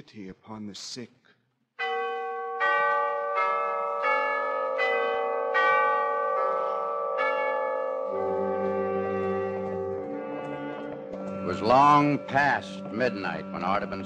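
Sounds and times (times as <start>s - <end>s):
tuned bells melody: 1.8s - 14.0s
low held note: 7.9s - 14.0s.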